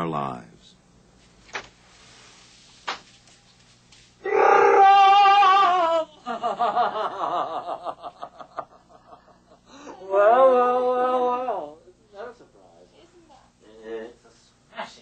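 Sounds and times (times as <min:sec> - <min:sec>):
wordless vocal cry: 0:04.2 - 0:06.1, 0:09.8 - 0:11.8.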